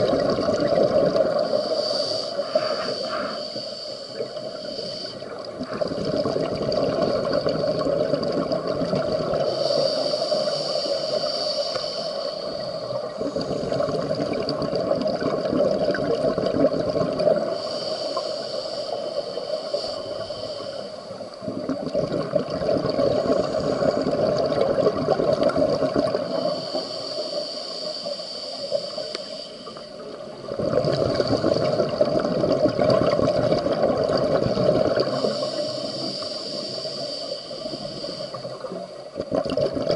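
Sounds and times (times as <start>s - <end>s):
bubbles gurgling on exhales: 0.0s - 1.7s, 5.4s - 10.4s, 12.5s - 17.6s, 21.1s - 27.1s, 30.0s - 36.9s, 38.3s - 39.9s
regulator hiss on inhales: 1.0s - 6.2s, 8.9s - 14.5s, 16.5s - 21.5s, 22.3s - 30.5s, 34.3s - 39.2s.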